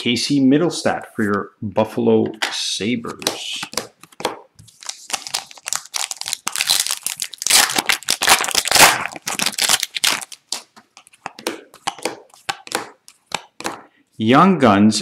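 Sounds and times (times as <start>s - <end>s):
cards snapping: 3.1s - 13.9s
foil wrapper tearing and crinkling: 4.7s - 10.7s.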